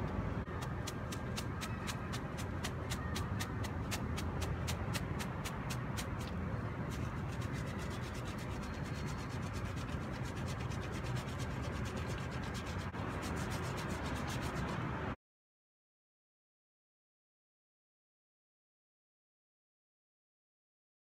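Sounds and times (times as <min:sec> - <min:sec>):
rapid regular ticks: 0:00.5 - 0:14.8
chalk rubbing through wire sieve: 0:06.9 - 0:14.9.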